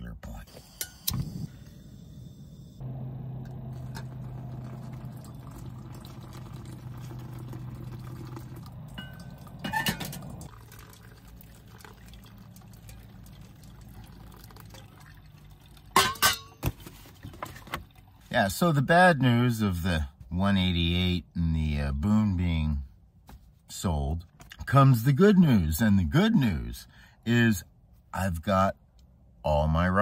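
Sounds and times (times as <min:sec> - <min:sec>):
water pouring from kettle: 0:03.7 - 0:16.3
metal pot clanking: 0:08.9 - 0:10.5, 0:15.9 - 0:16.7
metallic clatter: 0:09.0 - 0:10.5.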